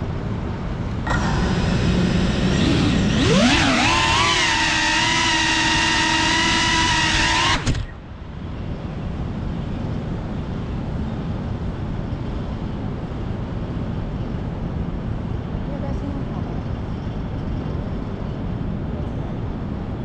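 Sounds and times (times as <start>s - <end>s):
low background rumble: 0.0s - 20.0s
drone motors whining: 1.0s - 8.1s.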